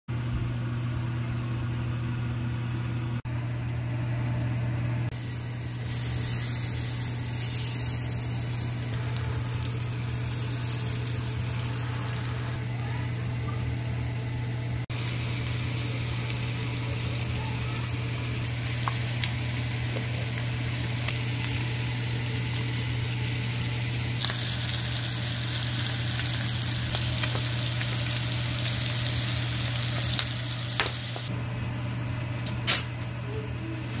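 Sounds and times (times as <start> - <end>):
constant low hum: 0.2 - 34.0
fish sizzling in oil: 5.2 - 12.9, 14.9 - 31.3.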